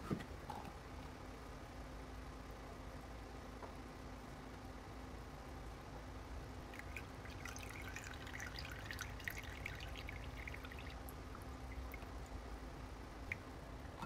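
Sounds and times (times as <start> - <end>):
faint steady hum: 0.0 - 14.0
milk dripping through a filter: 6.6 - 12.5.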